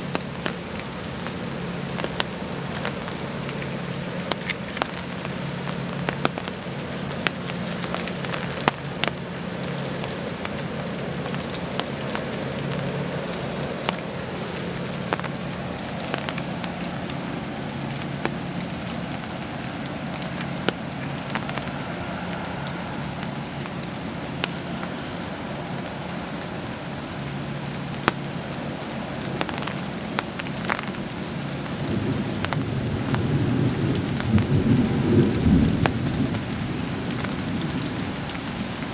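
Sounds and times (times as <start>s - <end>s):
drops ticking on a surface: 0.0s - 36.4s
steady rain: 0.0s - 38.9s
thunder rumbling: 10.4s - 26.8s, 31.8s - 38.8s.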